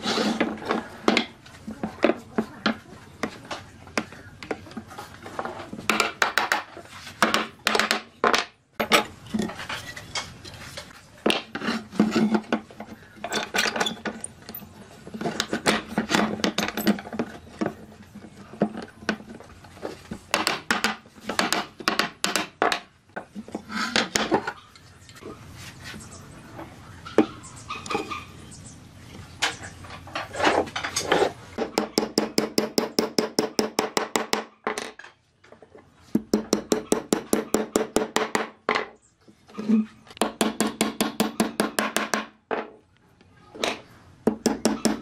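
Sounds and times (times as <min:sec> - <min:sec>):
hand tools tapping on wood: 0:20.2 - 0:23.3, 0:31.6 - 0:34.5, 0:44.2 - 0:45.0.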